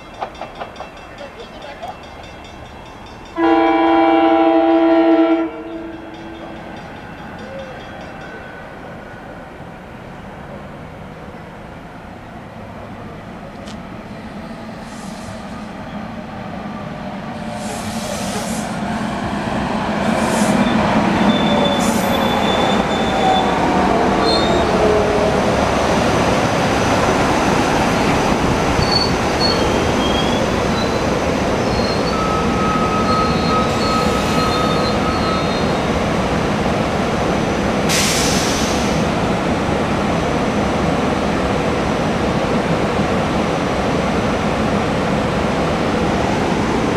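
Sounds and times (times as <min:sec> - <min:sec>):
train wheel squeals: 0:20.2 - 0:23.6, 0:24.2 - 0:24.7, 0:28.8 - 0:36.0.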